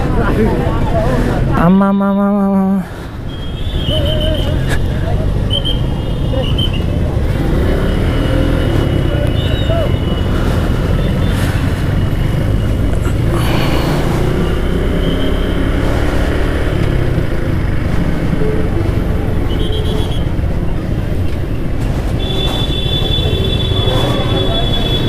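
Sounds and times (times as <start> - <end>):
motorcycle engine: 6.8 - 25.0.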